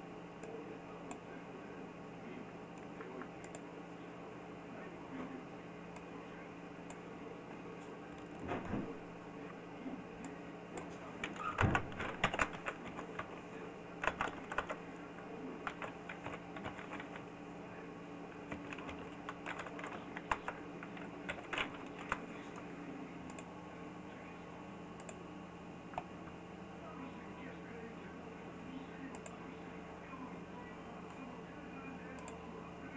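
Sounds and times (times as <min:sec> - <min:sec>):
steady low hum: 0:00.0 - 0:32.9
computer keyboard typing: 0:10.8 - 0:17.3, 0:18.3 - 0:22.6.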